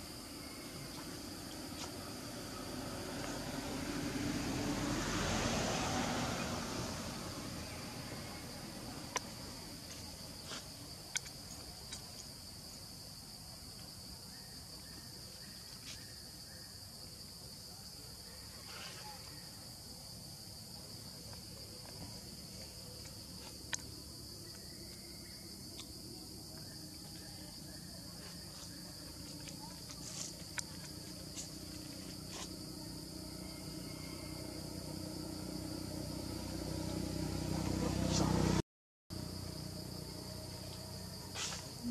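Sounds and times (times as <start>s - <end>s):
high-pitched insect drone: 21.5s - 38.5s.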